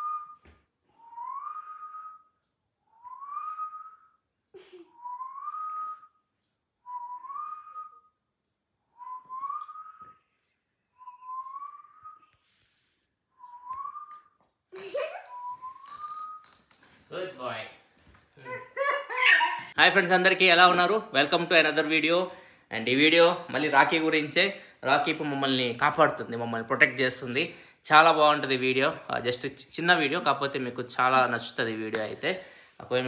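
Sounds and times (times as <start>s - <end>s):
person whistling: 0.0s - 4.3s, 4.9s - 8.3s, 8.9s - 12.5s, 13.3s - 14.4s, 15.2s - 16.6s.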